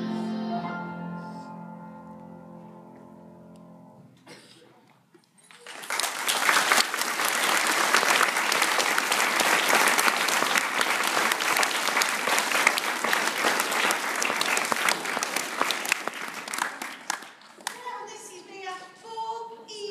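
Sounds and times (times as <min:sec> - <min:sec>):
children applauding: 0:05.4 - 0:17.8.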